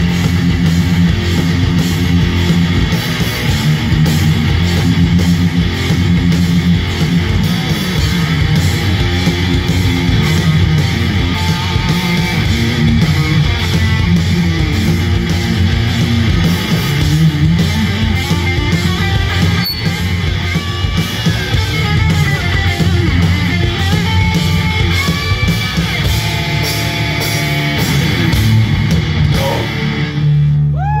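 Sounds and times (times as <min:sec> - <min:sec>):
drums with cymbal strokes: 0:00.0 - 0:30.4
bass guitar: 0:00.0 - 0:31.0
distorted electric guitars: 0:00.0 - 0:31.0.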